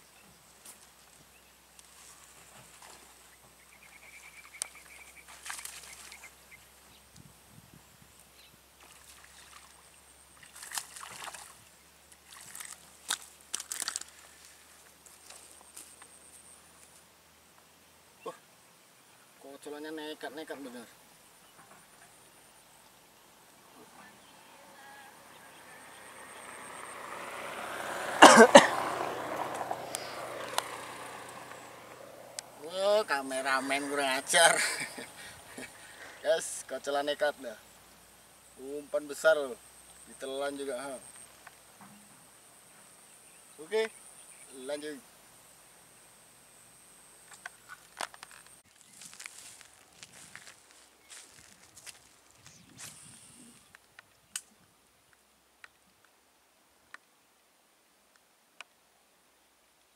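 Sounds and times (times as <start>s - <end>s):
fish splashing at water surface: 8.8s - 11.6s, 12.2s - 14.3s
person coughing: 28.2s - 28.8s.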